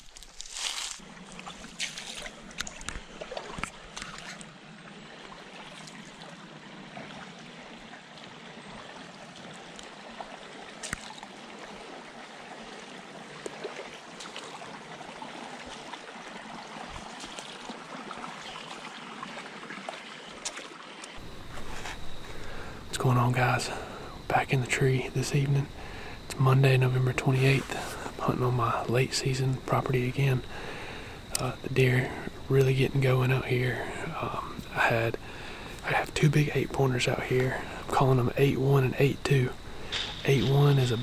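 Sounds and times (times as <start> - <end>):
footsteps on dry leaves: 0.0 - 2.4
creek water running: 0.0 - 41.0.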